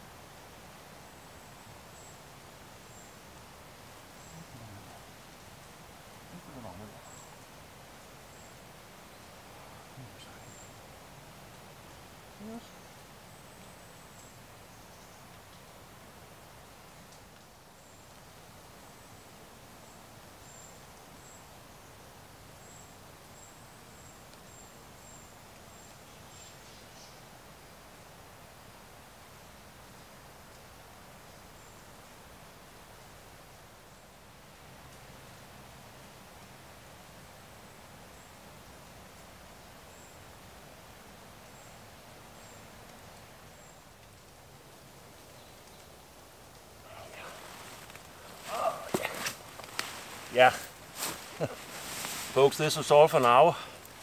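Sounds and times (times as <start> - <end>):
faint hiss: 0.0 - 54.0
small bird chirping: 4.1 - 5.7, 6.3 - 7.6.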